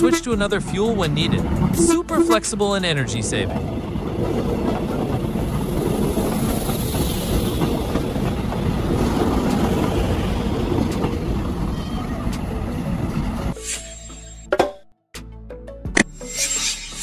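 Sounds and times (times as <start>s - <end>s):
train wheels on rails: 2.8s - 13.6s.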